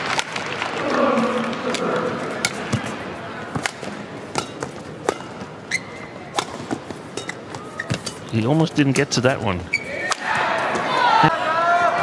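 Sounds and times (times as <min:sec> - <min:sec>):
crowd murmur: 0:00.0 - 0:07.9
racket hitting shuttlecock: 0:01.7 - 0:05.5, 0:06.3 - 0:08.3
court shoes squeaking: 0:01.7 - 0:11.1.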